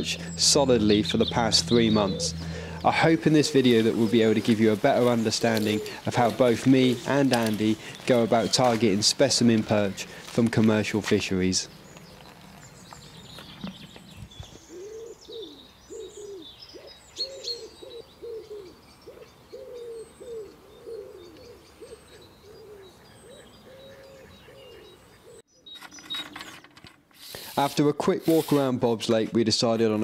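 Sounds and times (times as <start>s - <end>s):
small birds chirping: 0.0s - 27.6s
pigeon cooing: 1.6s - 8.8s, 13.6s - 25.4s.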